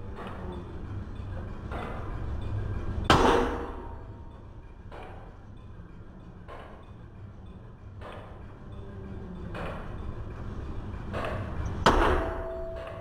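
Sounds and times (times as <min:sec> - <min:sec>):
metallic knock: 0:11.2 - 0:13.0
sledgehammer striking steel: 0:11.9 - 0:13.0.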